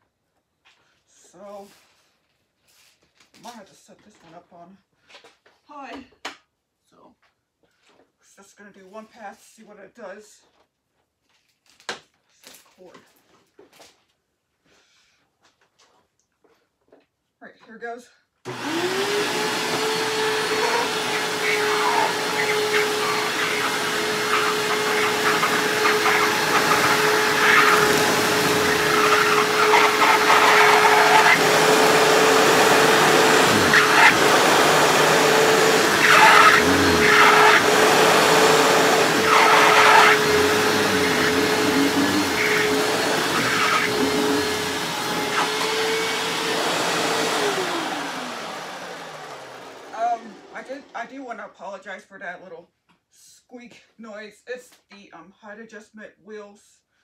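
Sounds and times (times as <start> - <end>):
vacuum wheels squeaking: 18.5 - 50.3
upright vacuum running: 18.5 - 50.9.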